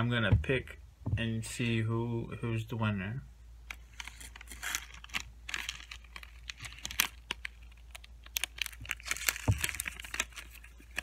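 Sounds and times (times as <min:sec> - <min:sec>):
plastic wrappers crinkling: 0:03.7 - 0:11.0.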